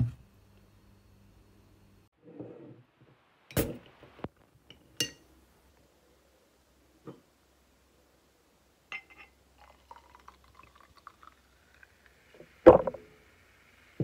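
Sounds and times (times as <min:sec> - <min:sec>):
glass clinking: 0:05.0 - 0:05.2, 0:08.9 - 0:11.3
liquid pouring into a glass: 0:09.5 - 0:12.3.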